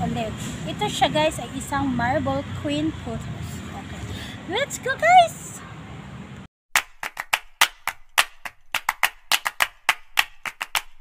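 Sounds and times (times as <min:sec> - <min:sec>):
hand claps: 0:06.8 - 0:11.0.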